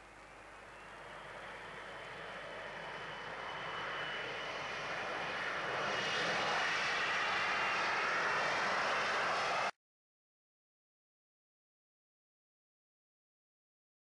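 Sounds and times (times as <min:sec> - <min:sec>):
jet engines rushing and whining: 0:00.0 - 0:09.8.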